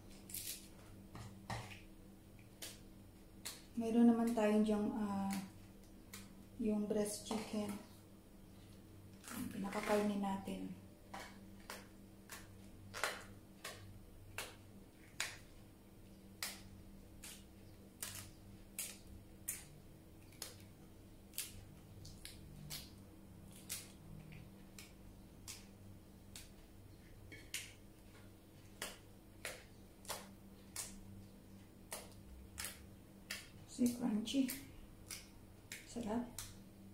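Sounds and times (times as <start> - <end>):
lettuce leaves tearing: 0.1 - 0.7, 9.1 - 10.3, 16.4 - 20.7, 21.3 - 25.7.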